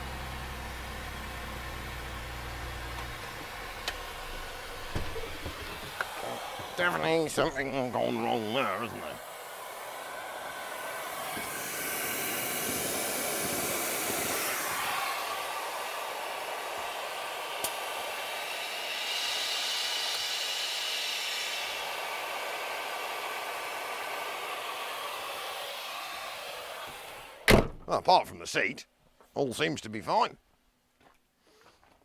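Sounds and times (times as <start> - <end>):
compressed air hissing: 3.4 - 27.6.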